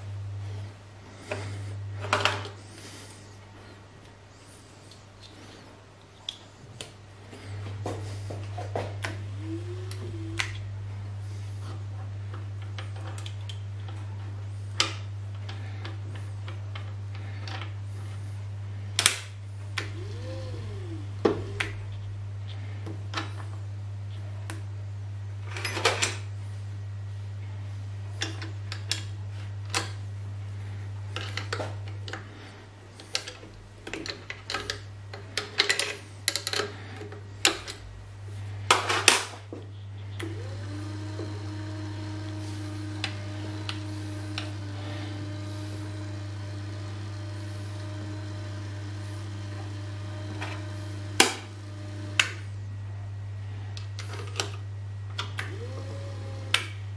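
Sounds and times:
steady low hum: 0:00.0 - 0:56.9
electric gear motor whine: 0:07.4 - 0:11.9, 0:19.7 - 0:22.8, 0:40.1 - 0:52.8, 0:55.0 - 0:56.9.

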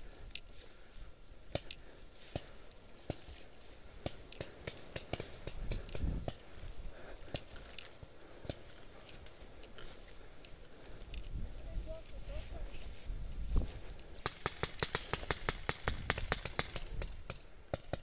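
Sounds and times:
footsteps on forest path: 0:00.0 - 0:15.1.

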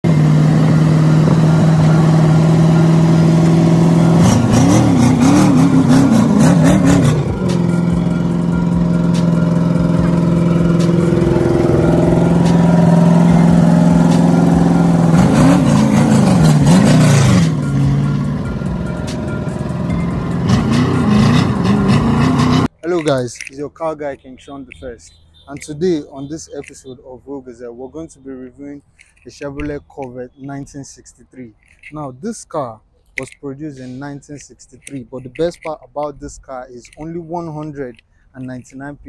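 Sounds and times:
car engine idling and revving: 0:00.0 - 0:22.8.

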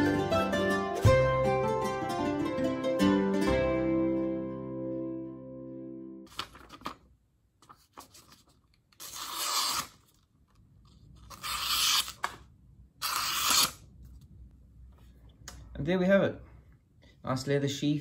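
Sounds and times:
mandolin music: 0:00.0 - 0:06.3.

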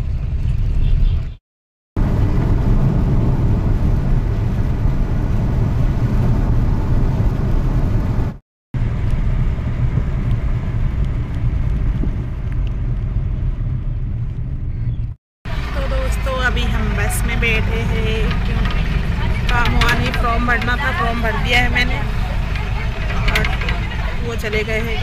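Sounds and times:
vehicle cabin road rumble: 0:00.0 - 0:01.4, 0:02.0 - 0:25.0.

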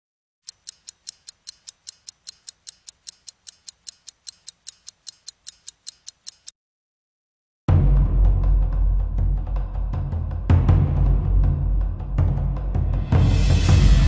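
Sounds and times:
film projector clicking: 0:00.4 - 0:06.5.

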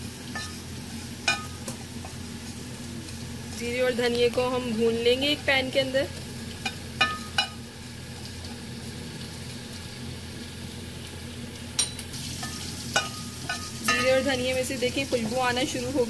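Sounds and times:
seeds frying hiss: 0:00.0 - 0:16.0
spoon clinking on pan: 0:00.3 - 0:00.6, 0:01.3 - 0:01.6, 0:11.8 - 0:14.3.

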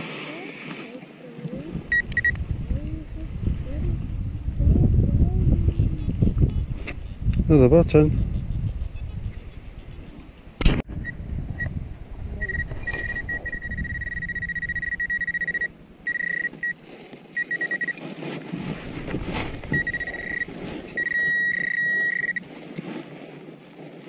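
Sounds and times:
wind noise on microphone: 0:01.4 - 0:24.0
metal detector buzzing alert: 0:01.9 - 0:02.4, 0:12.4 - 0:18.1, 0:19.5 - 0:22.5.

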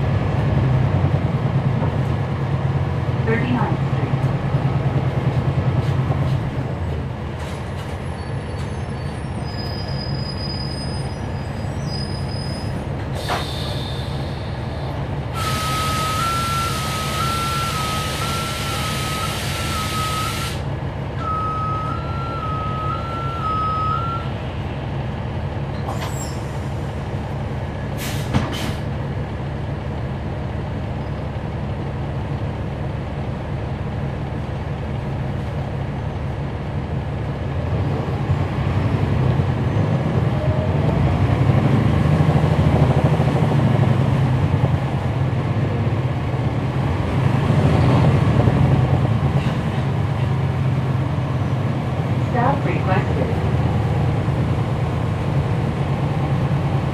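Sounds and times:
bus engine with rising whine: 0:00.0 - 0:56.9
sharp air release: 0:13.2 - 0:14.5, 0:15.4 - 0:20.7, 0:28.0 - 0:28.8
two-tone beeping signal: 0:15.6 - 0:20.4, 0:21.2 - 0:24.3.

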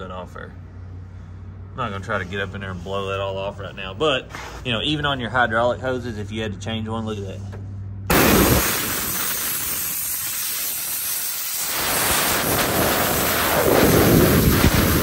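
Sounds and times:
compressed-air blow gun hissing: 0:08.1 - 0:15.0.

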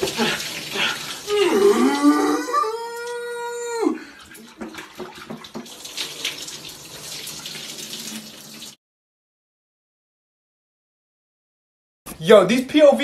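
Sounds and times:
water splashing in bathtub: 0:00.0 - 0:08.8
man imitating cow moo: 0:01.3 - 0:04.0.

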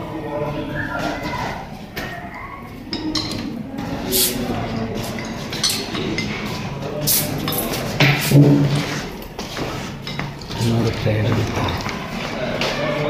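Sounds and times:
glass and metal items clinking: 0:04.2 - 0:06.6, 0:07.2 - 0:09.4, 0:10.0 - 0:12.1.

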